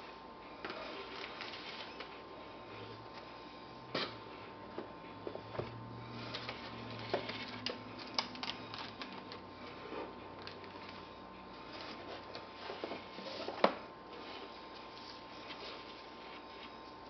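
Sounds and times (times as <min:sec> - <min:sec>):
faint steady hum: 0:00.0 - 0:17.0
cardboard and paper rustling: 0:00.6 - 0:02.2, 0:06.2 - 0:11.0, 0:11.6 - 0:17.0.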